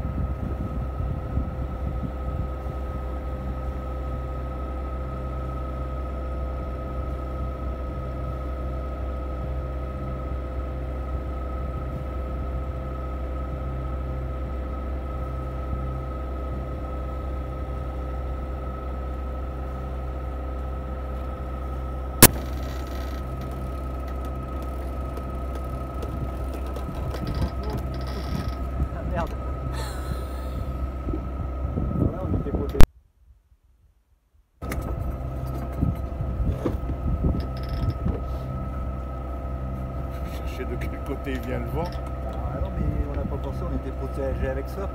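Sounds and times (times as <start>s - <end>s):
boat engine drone: 0.0s - 32.9s, 34.6s - 44.9s
steady whine: 0.0s - 32.9s, 34.6s - 44.9s
sharp click: 22.2s - 23.2s.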